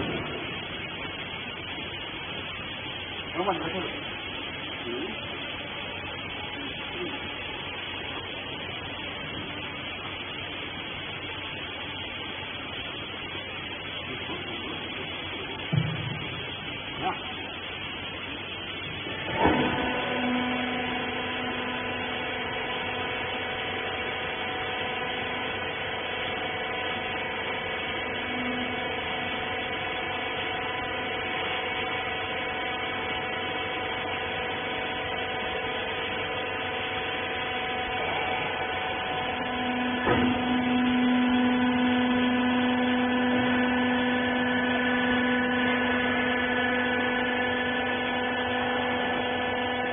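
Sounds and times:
hydraulic power pack whine: 0:00.0 - 0:49.9.

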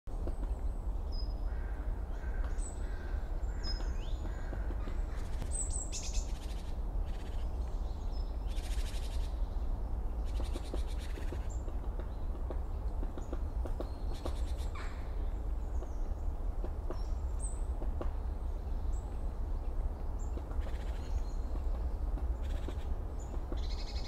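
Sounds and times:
small birds chirping: 0:00.2 - 0:24.0
crows cawing: 0:01.5 - 0:05.4.

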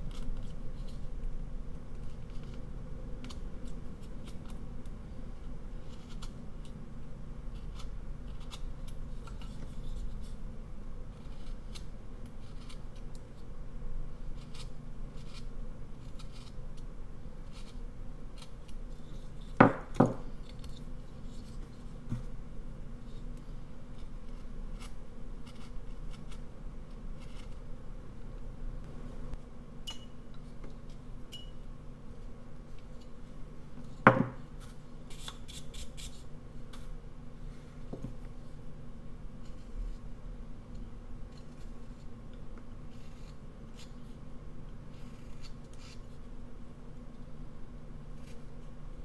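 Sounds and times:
knife carving wood: 0:00.0 - 0:01.1, 0:01.9 - 0:04.6, 0:05.3 - 0:06.8, 0:07.4 - 0:10.4, 0:11.1 - 0:13.5, 0:14.2 - 0:21.9, 0:23.9 - 0:27.6, 0:42.9 - 0:44.2, 0:44.9 - 0:46.2.

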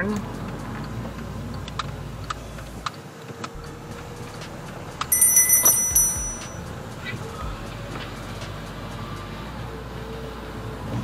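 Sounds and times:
bright metallic jingle: 0:05.1 - 0:06.7.

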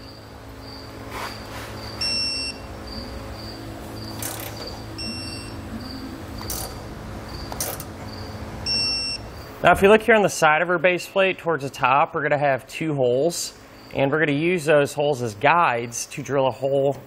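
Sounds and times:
two-tone beeps: 0:02.0 - 0:06.8, 0:08.7 - 0:09.2
high electronic pip: 0:02.0 - 0:10.0.

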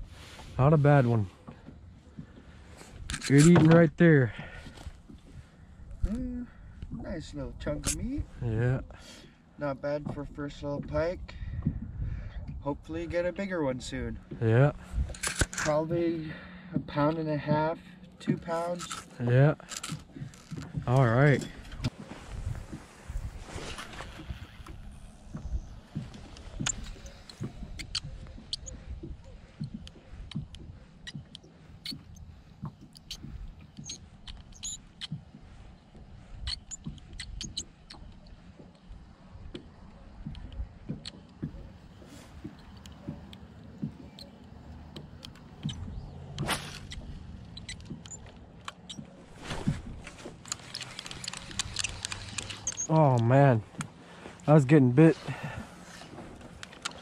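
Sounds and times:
water lapping: 0:10.2 - 0:57.0
rustling: 0:41.6 - 0:57.0
fishing reel whirring and clicking: 0:50.4 - 0:52.9.

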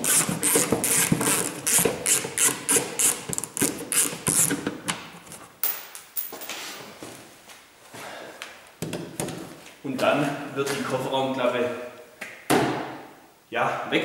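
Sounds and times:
hand ratchet clicking: 0:00.0 - 0:04.6.

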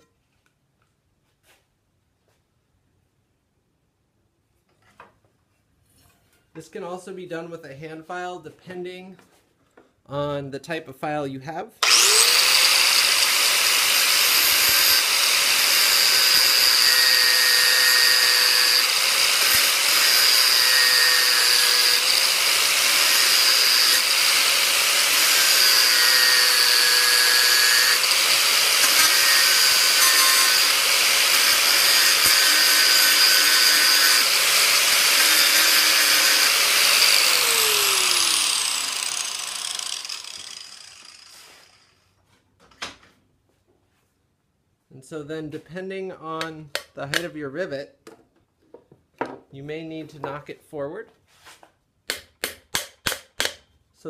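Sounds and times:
angle grinder grinding metal: 0:11.8 - 0:42.0.

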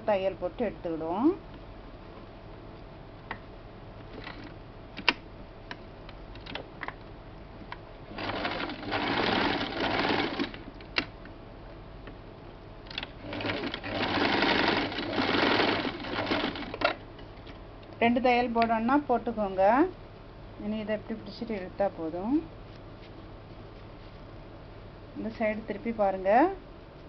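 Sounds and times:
electric sewing machine stitching: 0:08.2 - 0:10.6, 0:13.2 - 0:16.9.

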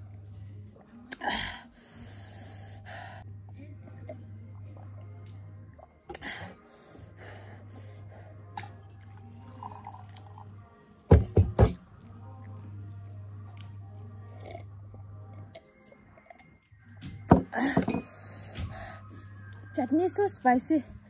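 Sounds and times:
water poured into a mug: 0:09.0 - 0:10.6.

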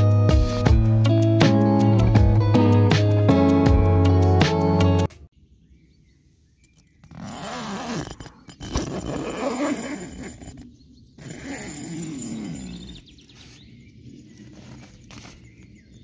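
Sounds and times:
tent zipper pulled open: 0:07.0 - 0:10.5, 0:11.2 - 0:13.0.

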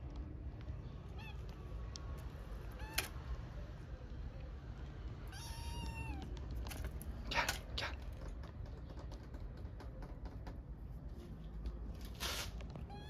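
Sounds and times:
kitten meowing: 0:01.1 - 0:01.6, 0:02.6 - 0:03.2, 0:05.3 - 0:06.4.

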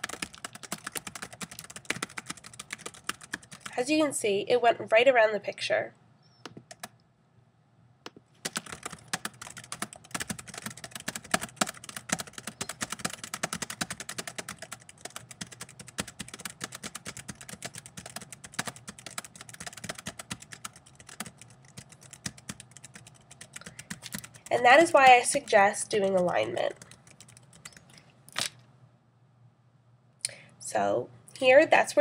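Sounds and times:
rapid keyboard typing: 0:00.0 - 0:04.2, 0:06.5 - 0:07.0, 0:08.1 - 0:28.0.

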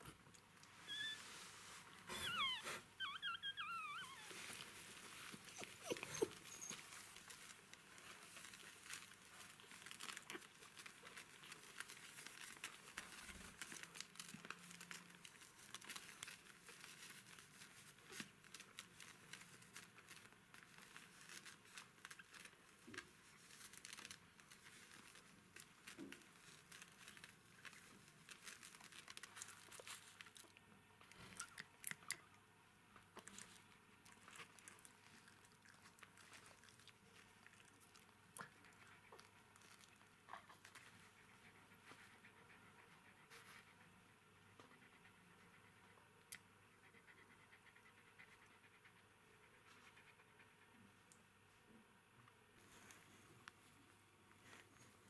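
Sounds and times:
soft crinkling and clicking: 0:00.0 - 0:32.4, 0:33.0 - 0:42.6, 0:52.2 - 0:55.0
puppies squeaking: 0:00.8 - 0:01.3, 0:02.1 - 0:04.6, 0:05.5 - 0:07.0.

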